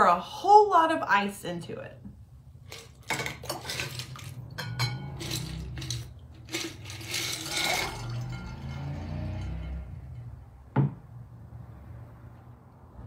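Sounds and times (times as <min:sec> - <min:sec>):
ice cubes clinking against glass: 0:02.7 - 0:09.7.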